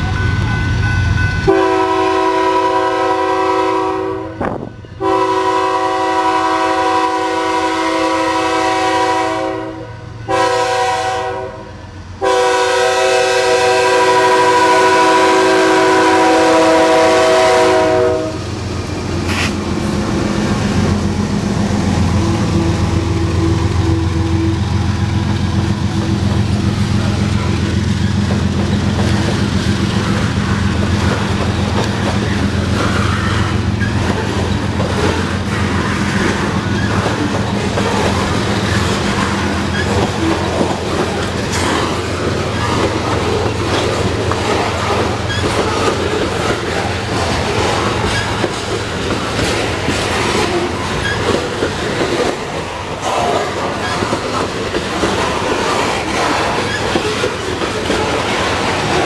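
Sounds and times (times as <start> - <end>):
rolling train rumble: 0.0 - 59.0
train wheels clacking over rail joints: 18.8 - 21.2, 22.8 - 59.0.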